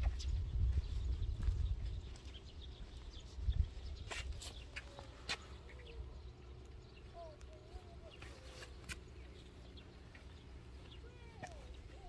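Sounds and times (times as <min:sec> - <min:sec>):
wind rumble on microphone: 0:00.0 - 0:04.7.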